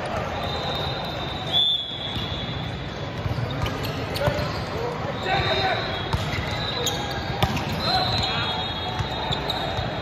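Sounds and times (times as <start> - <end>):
sports hall background noise: 0.0 - 10.0
referee's whistle: 0.2 - 2.7, 3.8 - 10.0.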